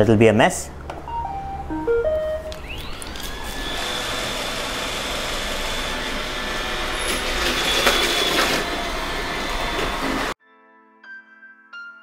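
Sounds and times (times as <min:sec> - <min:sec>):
robot vacuum whirring: 0:02.5 - 0:10.4.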